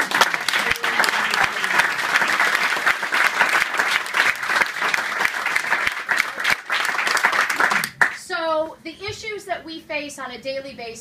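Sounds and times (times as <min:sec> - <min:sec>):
people applauding: 0:00.0 - 0:08.2.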